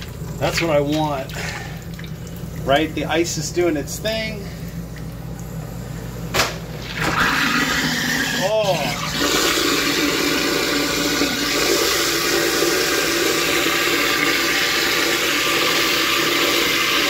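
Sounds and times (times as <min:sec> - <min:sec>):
tap water running: 0:00.0 - 0:17.0
garbage disposal grinding ice: 0:06.8 - 0:17.0.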